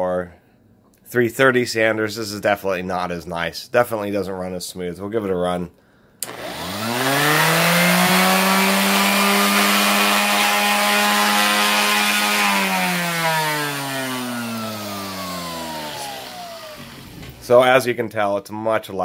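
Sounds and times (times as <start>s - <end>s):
orbit sander running: 6.2s - 17.6s.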